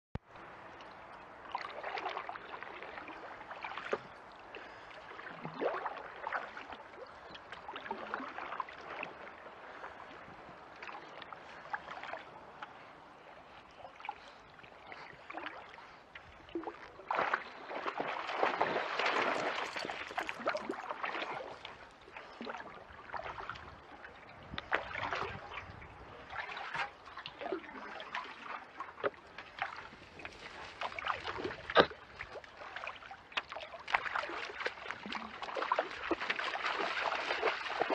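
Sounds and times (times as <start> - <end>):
kayak paddle splashing: 0.6 - 37.9
wash of water: 16.7 - 23.5, 26.2 - 37.9
water dripping and trickling: 18.3 - 23.7, 26.3 - 37.9.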